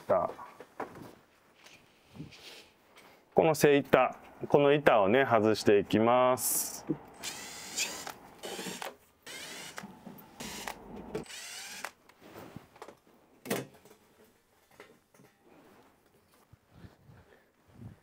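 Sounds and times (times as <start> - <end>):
electric screwdriver whirring: 7.2 - 12.0.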